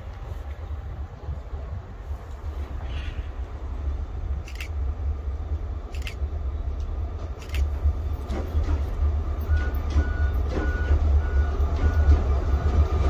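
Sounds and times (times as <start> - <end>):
train rumbling on tracks: 0.0 - 13.0
sharp clicks: 4.4 - 4.8, 6.8 - 8.4.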